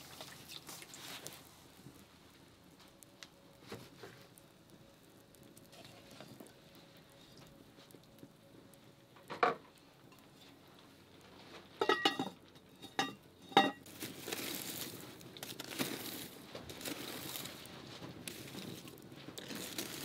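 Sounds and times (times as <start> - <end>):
wood fire crackling: 0.0 - 20.0
pot lid clanking: 11.8 - 13.8.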